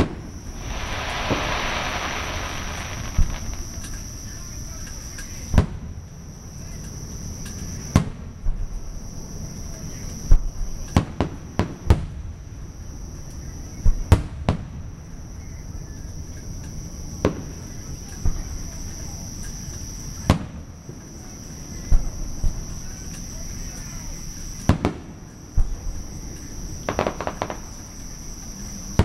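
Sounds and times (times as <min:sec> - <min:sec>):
fireworks bursting with bangs: 0:00.0 - 0:04.9, 0:26.7 - 0:28.2
crickets chirping: 0:00.0 - 0:08.0, 0:08.6 - 0:10.9, 0:15.0 - 0:29.0.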